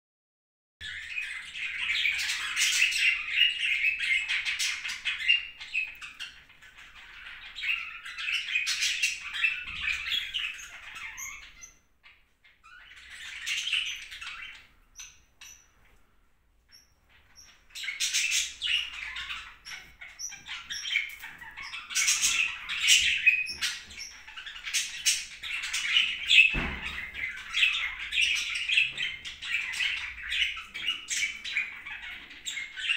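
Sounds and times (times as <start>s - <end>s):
kittens squeaking and mewing: 16.7s - 32.9s.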